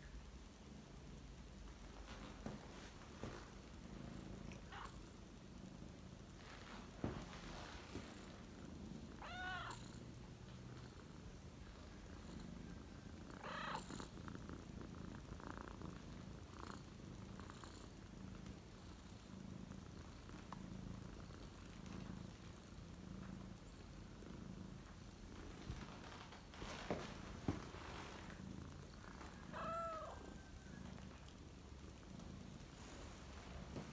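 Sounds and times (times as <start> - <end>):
cat purring: 0.0 - 33.9
cat meowing: 9.2 - 9.8, 13.4 - 13.8, 29.5 - 30.3.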